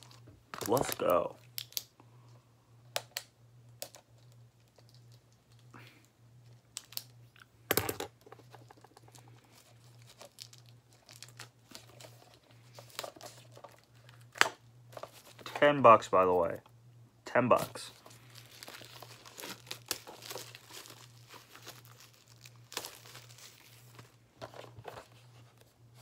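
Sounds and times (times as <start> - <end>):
shrink-wrap crinkling and tearing: 0.0 - 1.9, 6.5 - 7.4, 8.5 - 14.4, 17.6 - 25.6.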